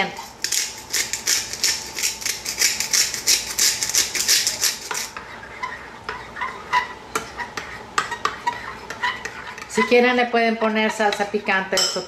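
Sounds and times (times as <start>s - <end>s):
pepper mill grinding: 0.2s - 5.1s
metal spoon clinking in bowl: 11.8s - 12.0s.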